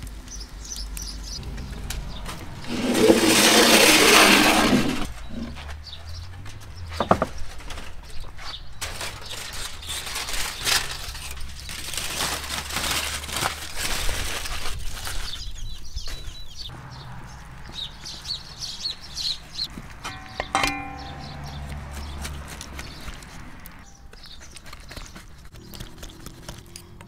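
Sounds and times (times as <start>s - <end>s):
aluminium foil crinkling: 7.4s - 16.4s, 20.8s - 27.0s
heavy pan knocking on wooden board: 20.1s - 21.7s.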